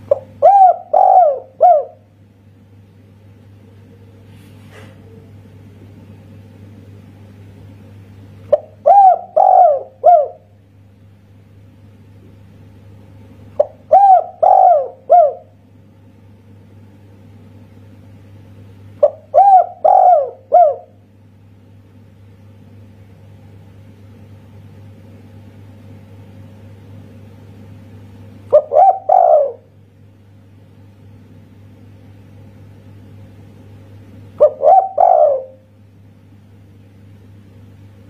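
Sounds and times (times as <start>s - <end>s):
dove cooing: 0.0s - 2.1s, 8.5s - 10.6s, 13.6s - 15.6s, 19.0s - 21.0s, 28.5s - 29.8s, 34.4s - 35.7s.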